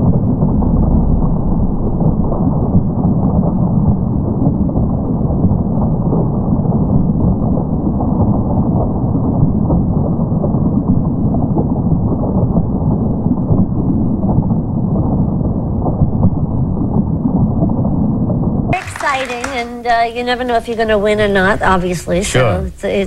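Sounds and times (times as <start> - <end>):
audience applauding: 18.8 - 20.2.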